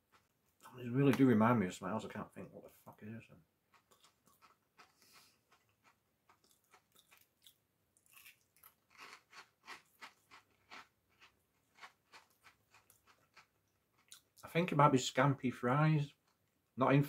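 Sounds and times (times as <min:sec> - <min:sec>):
chewing crunchy snacks: 0:03.7 - 0:14.4.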